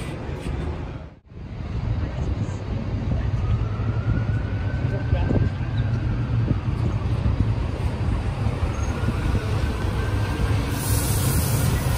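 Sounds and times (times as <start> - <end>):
bus engine rumbling: 0.0 - 11.9.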